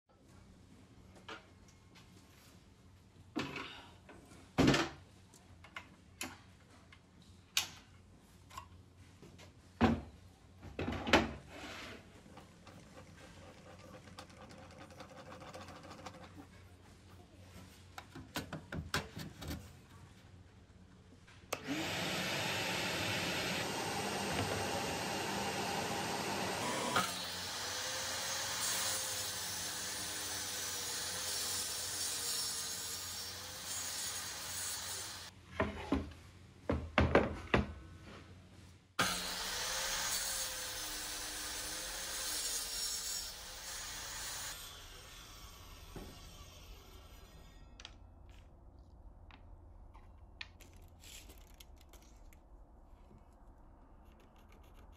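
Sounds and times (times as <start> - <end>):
table saw cutting plywood: 21.6 - 35.3, 39.0 - 47.6.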